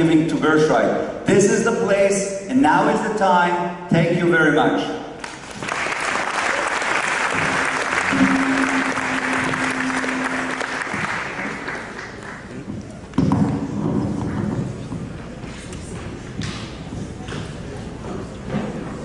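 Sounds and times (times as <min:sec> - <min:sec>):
audience applauding: 0:05.2 - 0:12.7
loud pitched sound: 0:07.2 - 0:12.0
music playing: 0:07.3 - 0:11.9.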